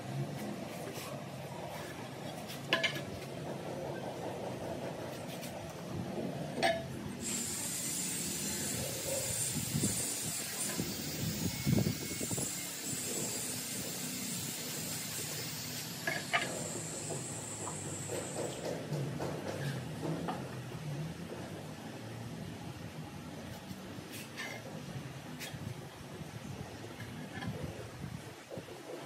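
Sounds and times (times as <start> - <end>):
steady high hiss: 7.0 - 18.6.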